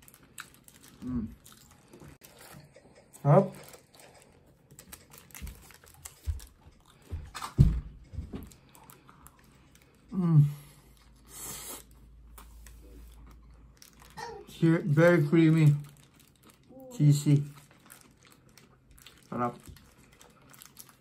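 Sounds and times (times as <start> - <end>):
paper wrapper crinkling: 0.0 - 2.7, 3.5 - 6.6, 12.5 - 21.0
person chewing food: 0.0 - 14.2, 15.8 - 16.7, 17.5 - 21.0.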